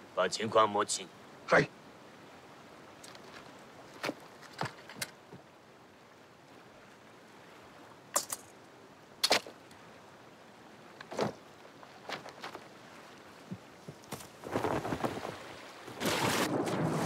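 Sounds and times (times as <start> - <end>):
faint outdoor hiss: 0.0 - 17.0
knocks and clatters on gravel: 3.0 - 5.2, 11.0 - 12.7.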